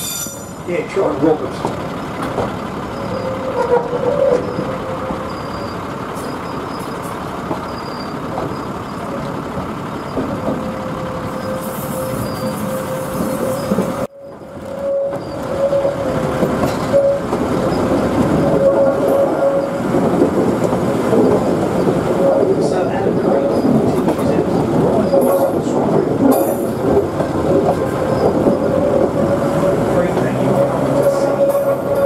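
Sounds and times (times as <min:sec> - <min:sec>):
train wheels squealing: 0:00.0 - 0:00.6, 0:03.0 - 0:09.0, 0:11.2 - 0:19.9, 0:25.0 - 0:25.6, 0:27.8 - 0:32.0
railcar rumbling: 0:00.0 - 0:32.0.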